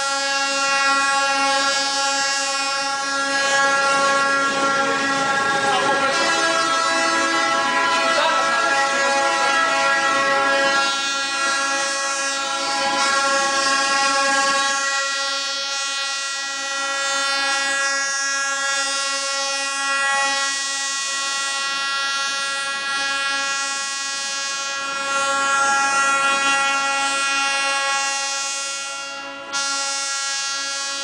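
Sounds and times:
train horn blast: 0.0s - 31.0s.

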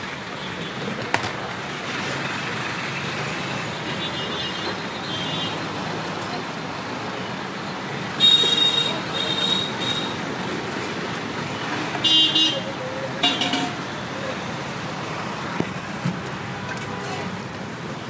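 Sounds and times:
road traffic passing: 0.0s - 18.0s
vehicle horns honking: 8.2s - 10.2s, 12.0s - 14.0s.

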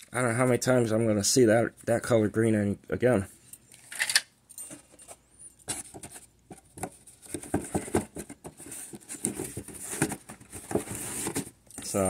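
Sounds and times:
plastic parts rattling in cardboard box: 7.2s - 12.0s.

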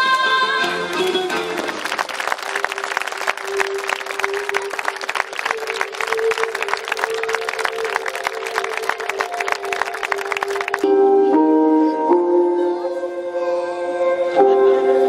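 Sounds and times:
music with long held notes: 0.0s - 15.0s
audience applause: 0.8s - 10.9s
singing: 2.5s - 10.8s.

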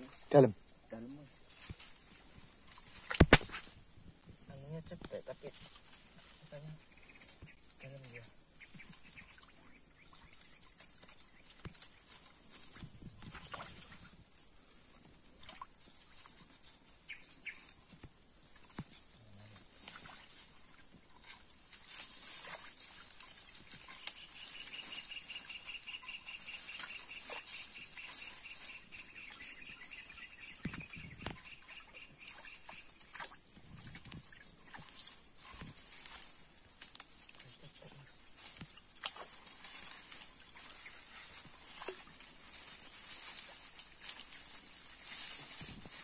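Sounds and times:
high-pitched insect chorus: 0.0s - 46.0s
insect fast pulsing trill: 0.0s - 46.0s.

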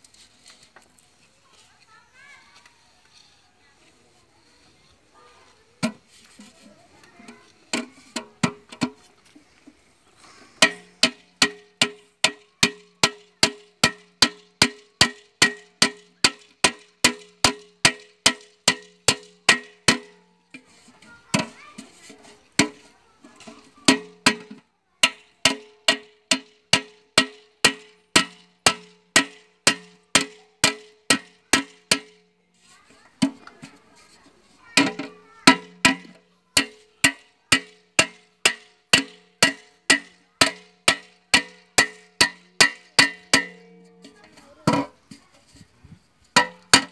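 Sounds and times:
hammer striking metal pot: 10.6s - 20.2s, 23.9s - 32.2s, 34.8s - 44.9s, 46.4s - 46.9s.

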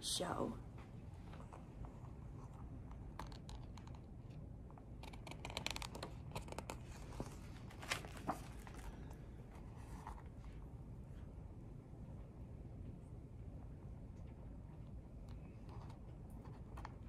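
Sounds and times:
book pages turning: 5.0s - 10.6s.

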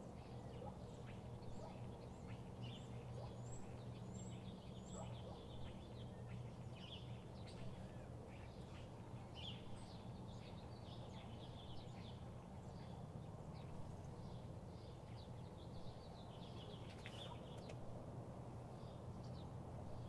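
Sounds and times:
birds chirping: 0.1s - 17.8s.

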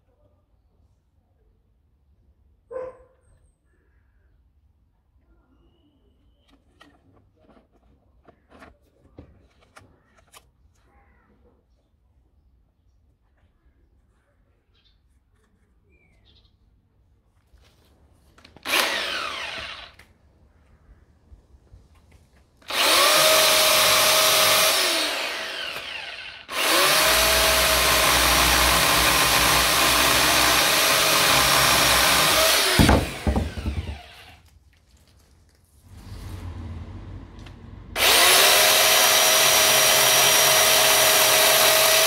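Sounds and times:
electric chainsaw running: 18.6s - 20.1s, 22.6s - 34.4s, 36.3s - 42.0s.

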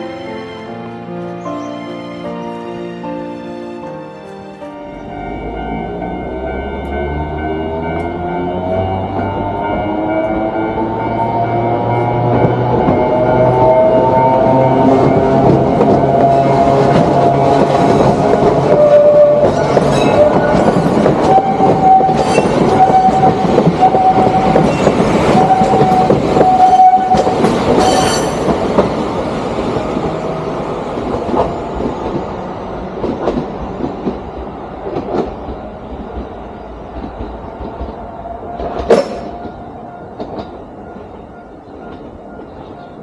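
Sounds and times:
train wheels clacking over rails: 14.6s - 43.0s.

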